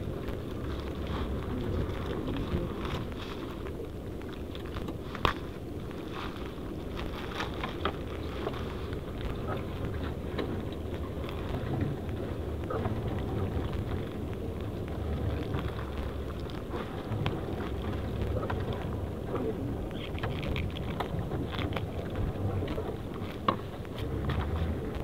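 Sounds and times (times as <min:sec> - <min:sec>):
net rustling and crackling: 0:00.0 - 0:12.7
low rumble of wind and boat: 0:00.0 - 0:25.0.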